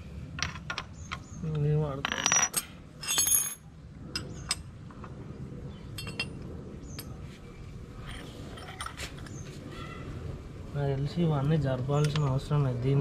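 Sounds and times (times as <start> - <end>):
metal spanners clinking: 2.0 - 3.6.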